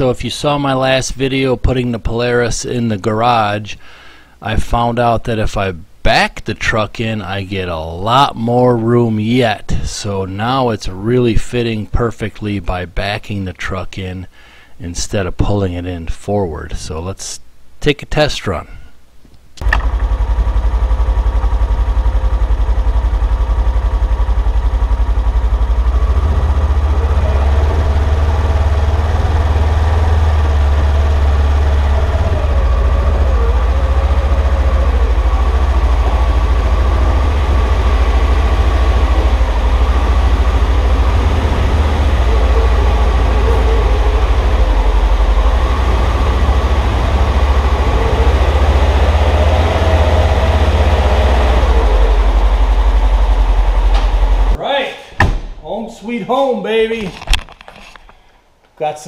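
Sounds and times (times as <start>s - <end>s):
utility vehicle engine running: 19.6s - 54.6s.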